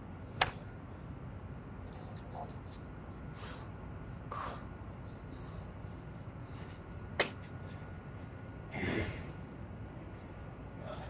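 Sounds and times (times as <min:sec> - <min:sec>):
man breathing hard: 0:03.3 - 0:07.0, 0:10.7 - 0:11.0.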